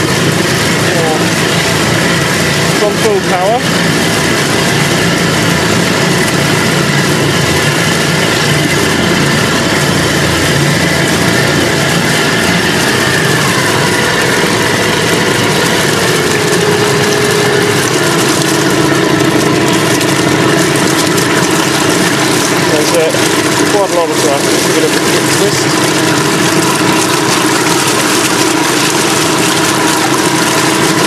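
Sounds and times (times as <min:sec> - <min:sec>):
electric motor whine: 0:00.0 - 0:31.0
water churning and splashing: 0:00.0 - 0:31.0.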